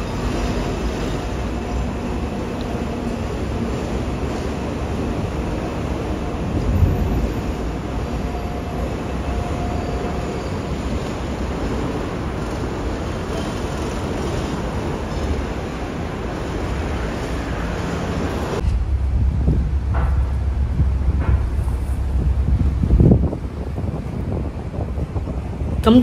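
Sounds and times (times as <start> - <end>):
wind buffeting microphone: 0.0 - 16.3, 18.2 - 26.0
tram rolling on rails: 0.0 - 26.0
street din: 5.9 - 24.1.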